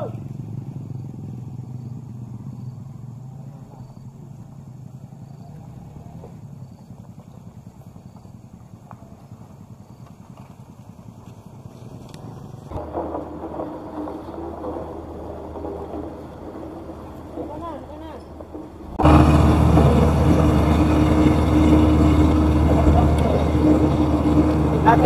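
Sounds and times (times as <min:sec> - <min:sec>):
vehicle engine running: 0:00.0 - 0:25.0
loud abrupt noise: 0:12.8 - 0:25.0.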